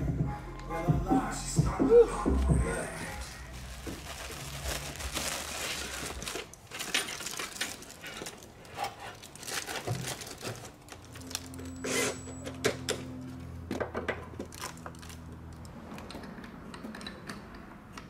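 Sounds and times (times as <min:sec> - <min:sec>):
metal duct clattering and rustling: 0:04.0 - 0:11.6.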